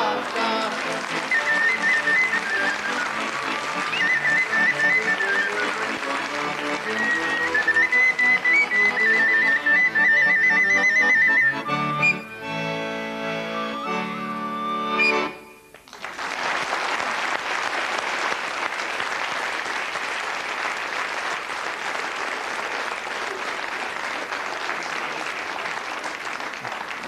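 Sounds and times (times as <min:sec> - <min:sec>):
audience applause: 0:00.0 - 0:11.6, 0:15.7 - 0:27.0
accordion: 0:00.0 - 0:15.8
clarinet: 0:00.8 - 0:15.8.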